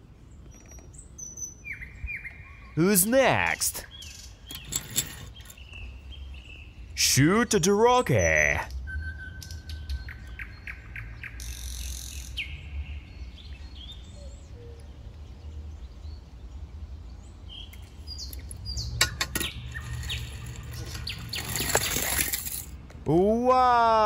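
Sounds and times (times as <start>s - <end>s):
birds chirping: 0.0s - 24.0s
toy car rolling on plastic track: 19.7s - 22.7s.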